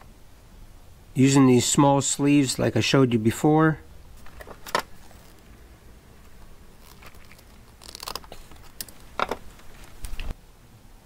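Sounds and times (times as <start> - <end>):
hands handling wires: 4.1 - 10.4
side cutters crunching wire: 6.3 - 10.3.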